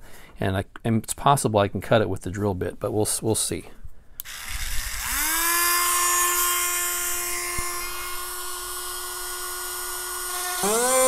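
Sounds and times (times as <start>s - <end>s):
rotary tool whining: 4.2s - 11.0s.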